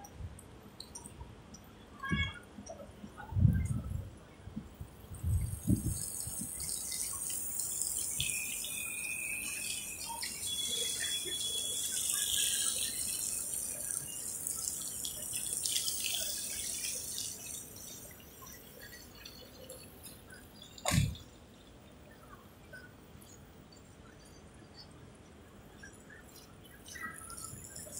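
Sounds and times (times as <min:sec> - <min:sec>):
tyres hissing on wet paving: 0:05.4 - 0:21.2.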